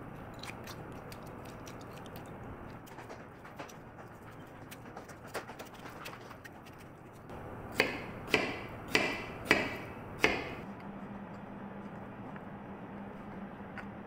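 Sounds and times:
knife chopping on plastic board: 0:07.7 - 0:10.6.

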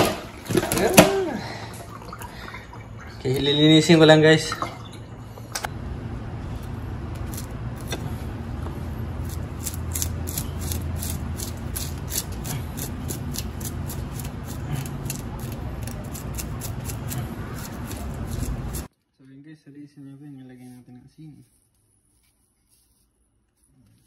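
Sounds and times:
knife scraping fish scales: 0:07.2 - 0:08.2, 0:09.2 - 0:18.9.

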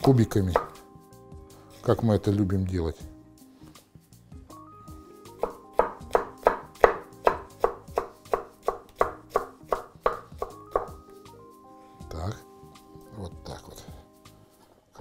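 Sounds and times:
knife chopping on wooden board: 0:00.5 - 0:00.8, 0:05.4 - 0:11.0.

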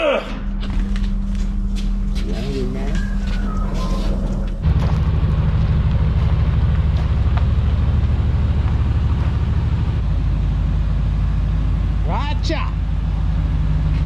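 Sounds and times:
vee eight engine rumbling: 0:00.0 - 0:14.0.

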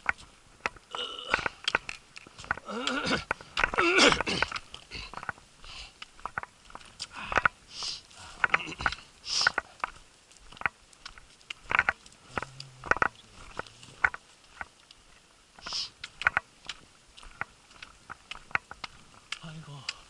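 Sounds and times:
footsteps on wooden boardwalk: 0:00.0 - 0:20.0
trekking poles clicking on wood: 0:00.0 - 0:20.0
person sniffing: 0:07.7 - 0:08.4, 0:09.2 - 0:09.6, 0:15.6 - 0:16.0.

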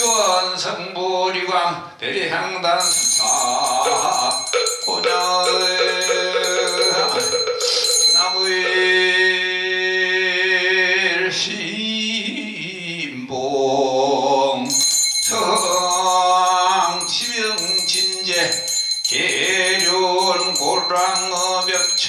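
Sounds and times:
hand bell jingling: 0:00.0 - 0:00.6, 0:02.8 - 0:09.1, 0:14.7 - 0:22.0.

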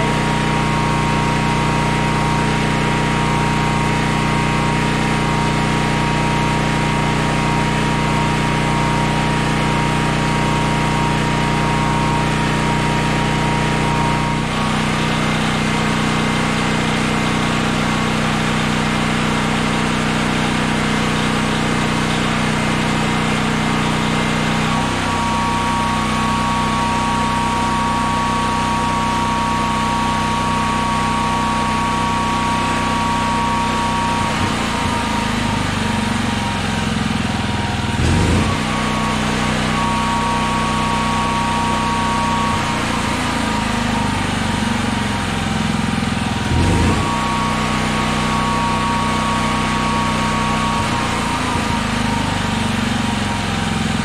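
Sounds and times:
generator engine running: 0:00.0 - 0:54.0
thin steady whine: 0:23.6 - 0:52.5.

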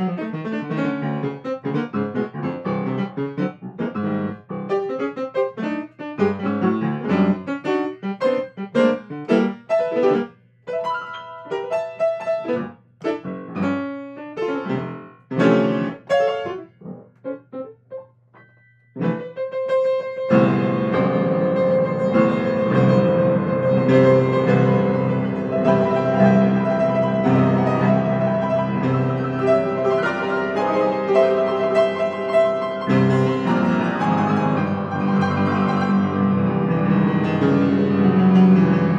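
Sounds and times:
grand piano improvising: 0:00.0 - 0:38.9.

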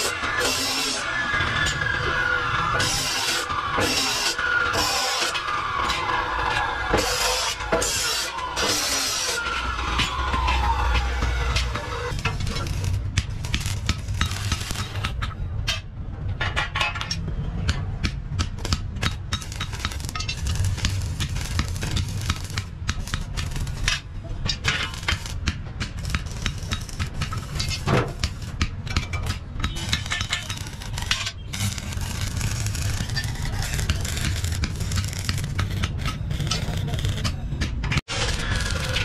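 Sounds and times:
welding arc crackling: 0:11.5 - 0:15.2, 0:18.4 - 0:37.4, 0:38.1 - 0:39.0.

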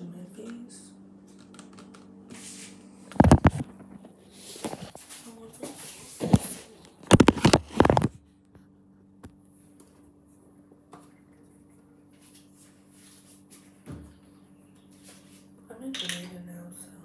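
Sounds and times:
faint steady hum: 0:00.0 - 0:17.0
rubs and knocks on microphone: 0:03.1 - 0:08.2.

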